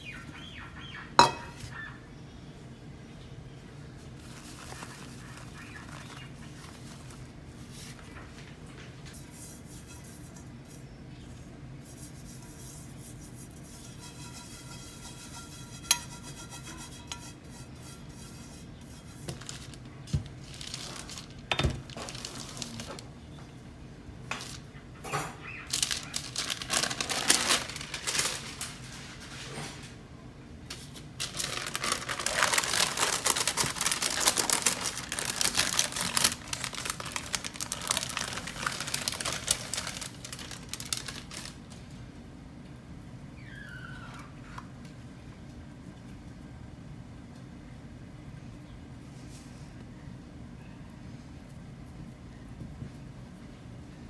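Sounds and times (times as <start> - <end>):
pie plate knocking on counter: 1.2 - 1.7
wax paper rustling and crinkling: 4.0 - 9.3, 18.1 - 23.1, 24.3 - 24.7, 25.5 - 29.9, 30.7 - 41.9.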